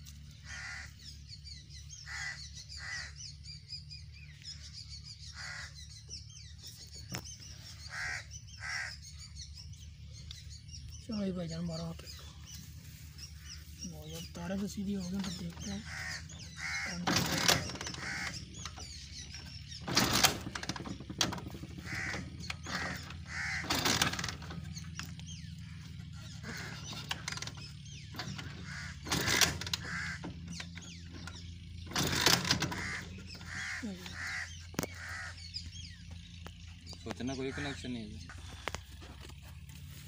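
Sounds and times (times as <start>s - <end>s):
steady low hum: 0.0s - 40.0s
crows cawing: 0.3s - 1.2s, 1.9s - 3.4s, 5.2s - 6.0s, 7.6s - 9.3s, 15.5s - 31.4s, 32.0s - 35.7s, 37.3s - 38.8s.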